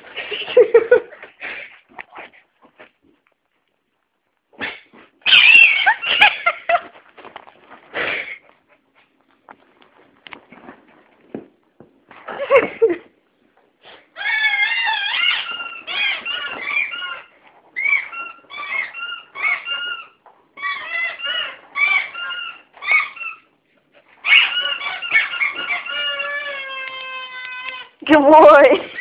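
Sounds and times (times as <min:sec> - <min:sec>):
dog whining and yelping: 0:04.6 - 0:06.8, 0:13.8 - 0:28.0
scuffle: 0:06.6 - 0:13.0.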